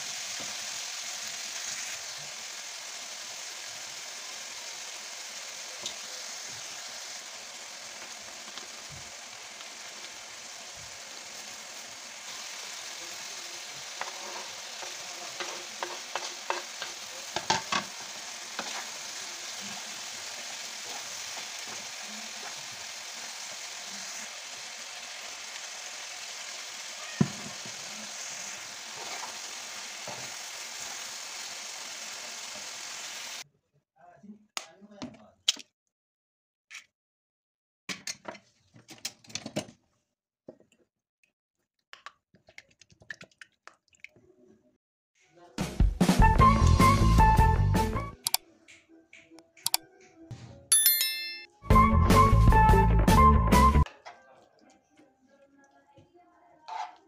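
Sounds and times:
food sizzling in frying pan: 0.0s - 33.4s, 46.2s - 48.3s
spoon scraping pan: 13.6s - 19.8s, 56.6s - 57.0s.

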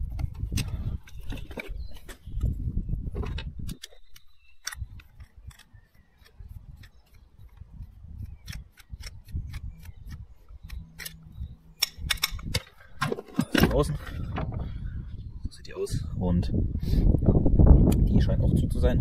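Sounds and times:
screwdriver clicking and scraping metal: 3.2s - 13.8s.

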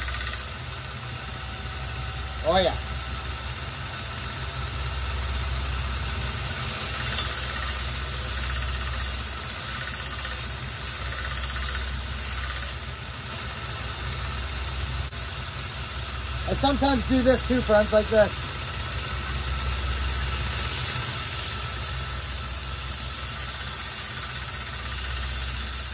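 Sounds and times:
belt grinder motor hum: 0.0s - 0.6s, 6.2s - 12.9s, 19.0s - 25.9s
axe grinding on sanding belt: 6.2s - 12.8s, 20.1s - 25.9s.

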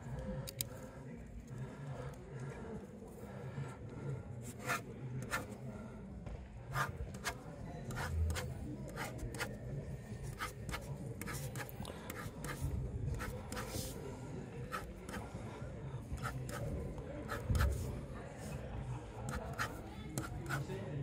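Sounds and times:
pen scratching on paper: 4.4s - 5.6s, 6.7s - 9.6s, 10.2s - 14.0s, 14.6s - 15.3s, 16.1s - 18.6s, 19.3s - 20.7s.

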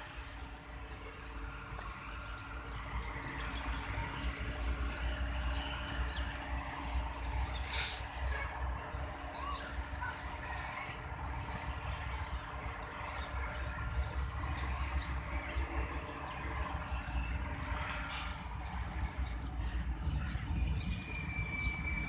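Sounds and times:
distant locomotive rumble: 0.0s - 22.0s
outdoor background noise: 0.0s - 22.0s
bird chirps: 17.9s - 18.7s.

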